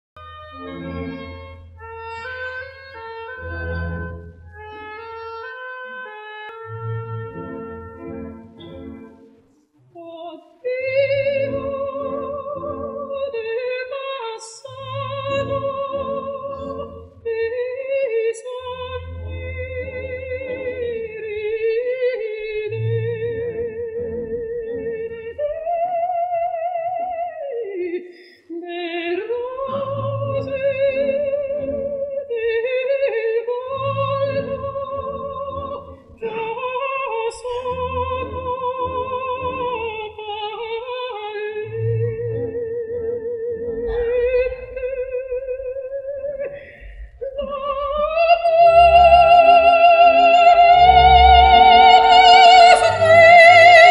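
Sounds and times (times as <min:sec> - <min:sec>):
soft orchestral chords: 0:00.2 - 0:09.5, 0:33.7 - 0:53.9
operatic soprano singing: 0:09.9 - 0:53.9
singer breathing: 0:28.0 - 0:28.5, 0:46.5 - 0:47.2.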